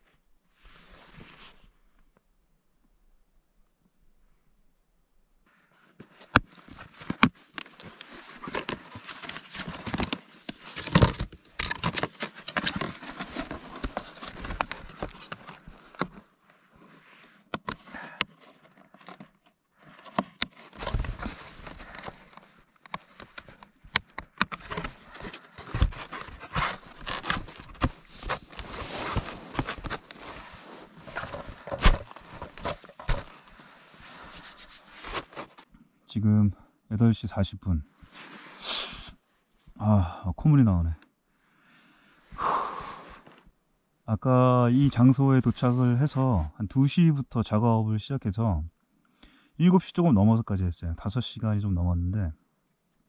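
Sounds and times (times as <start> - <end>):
plastic packaging crinkling: 24.5 - 30.3.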